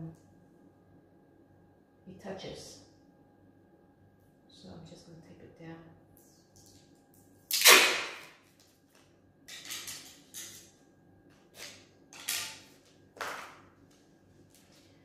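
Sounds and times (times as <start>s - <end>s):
masking tape ripping: 7.5s - 8.4s.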